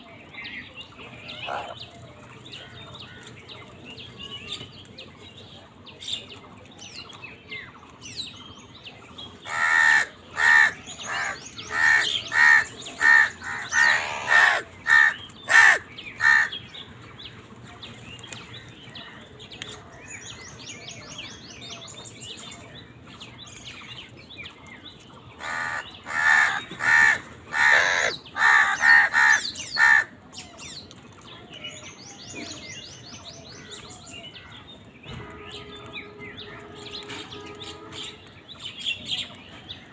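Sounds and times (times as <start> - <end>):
small birds chirping: 0.0 - 39.9
crows cawing: 1.3 - 1.8, 9.4 - 16.6, 25.4 - 30.1.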